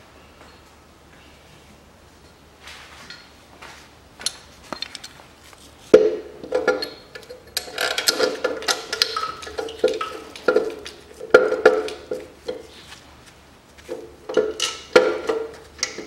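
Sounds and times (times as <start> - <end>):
metal knocks and clanks: 5.9 - 12.7, 13.9 - 16.0.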